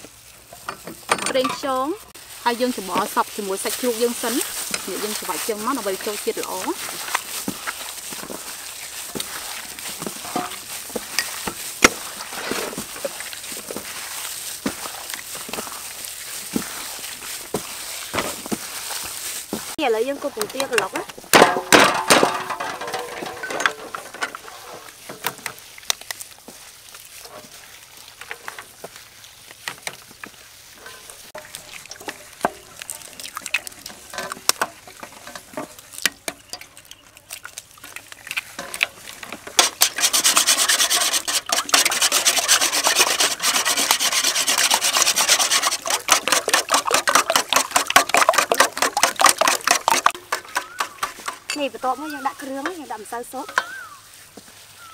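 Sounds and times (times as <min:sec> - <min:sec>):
whisk beating in metal bowl: 0:39.6 - 0:51.6.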